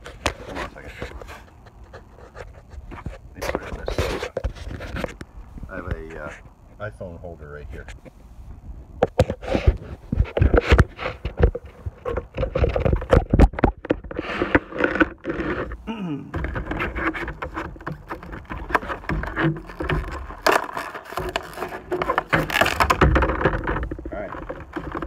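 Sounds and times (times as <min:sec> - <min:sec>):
knocks and clicks of handling: 0:09.0 - 0:25.0
plastic package crinkling: 0:17.8 - 0:24.6.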